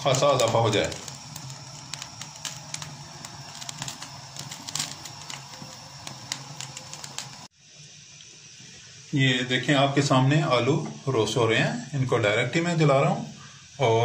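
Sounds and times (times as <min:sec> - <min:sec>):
potato skins crackling and popping: 0:00.0 - 0:07.5.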